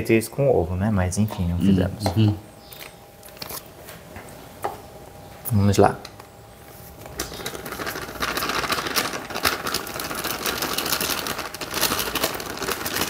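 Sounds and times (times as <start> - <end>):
plastic bag crinkling: 7.0 - 13.0
sugar pouring into plastic bowl: 7.4 - 13.0.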